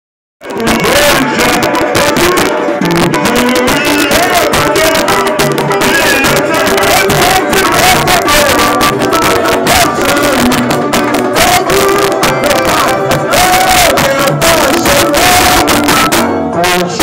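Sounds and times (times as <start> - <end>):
man singing into a microphone: 0.4 - 17.0
samba percussion group: 0.4 - 17.0
tamborins striking fast rhythm: 0.4 - 17.0.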